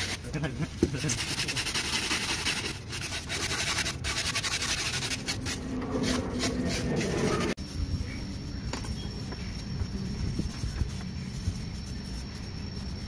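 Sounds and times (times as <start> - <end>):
gloved hands scraping polystyrene: 0.0 - 7.6.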